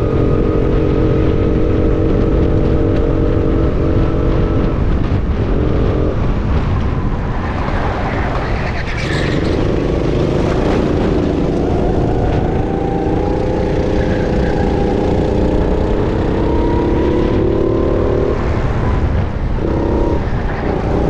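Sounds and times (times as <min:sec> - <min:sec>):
racing kart engine running hard: 0:00.0 - 0:21.0
wind noise on microphone: 0:00.0 - 0:21.0.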